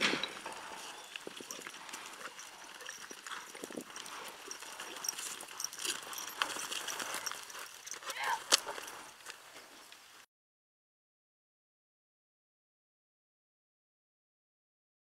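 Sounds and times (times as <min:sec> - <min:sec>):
hoofbeats on dirt: 0:00.0 - 0:10.2.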